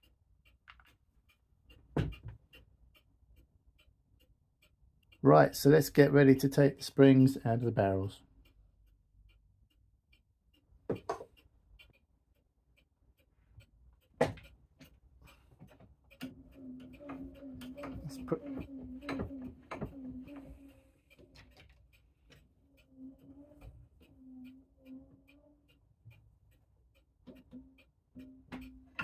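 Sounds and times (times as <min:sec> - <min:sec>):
clock ticking faintly: 0:00.0 - 0:29.0
clicks: 0:09.3 - 0:29.0.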